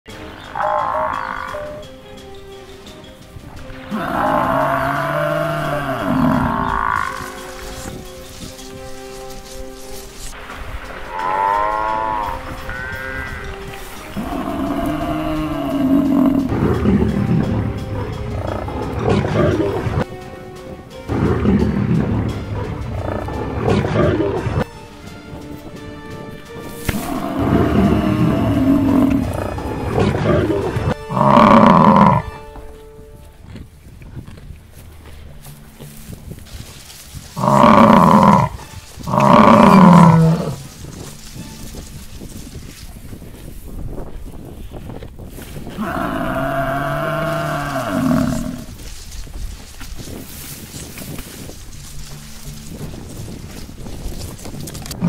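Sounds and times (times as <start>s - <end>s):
background music: 0.1s - 44.5s, 45.3s - 55.0s
large animal calling: 0.3s - 1.9s, 3.9s - 7.8s, 11.1s - 20.0s, 27.0s - 32.3s, 37.4s - 40.7s, 45.7s - 48.7s
lions growling: 3.9s - 7.9s, 14.1s - 20.0s, 21.1s - 24.6s, 27.0s - 32.2s, 37.4s - 40.6s, 45.7s - 48.8s
low scuffling noise: 5.8s - 11.0s, 32.4s - 55.0s.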